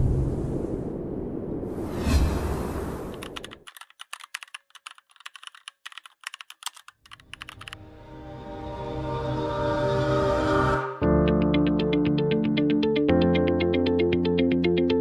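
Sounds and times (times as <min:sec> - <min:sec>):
keyboard typing clicks: 0:03.2 - 0:07.8
music with sustained tones: 0:07.8 - 0:15.0.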